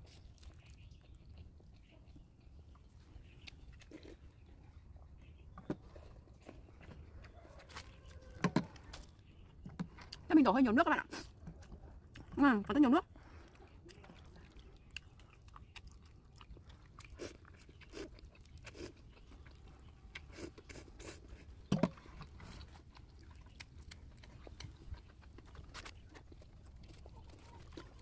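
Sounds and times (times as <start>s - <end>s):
slurping and chewing: 0.0s - 5.1s, 11.0s - 12.4s, 13.0s - 28.0s.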